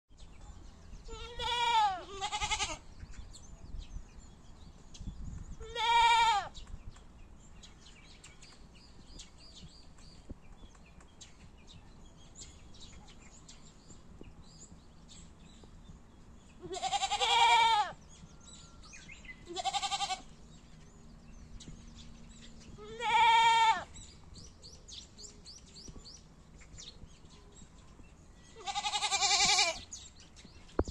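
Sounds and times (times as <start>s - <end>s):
goats bleating: 1.1s - 2.8s, 5.7s - 6.5s, 16.6s - 18.0s, 19.5s - 20.3s, 22.8s - 23.9s, 28.6s - 29.8s.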